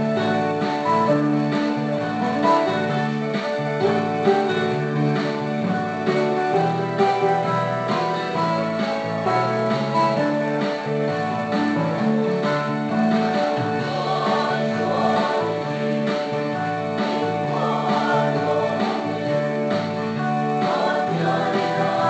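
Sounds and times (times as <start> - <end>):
guitar accompaniment: 0.0 - 22.0
people singing: 13.5 - 22.0.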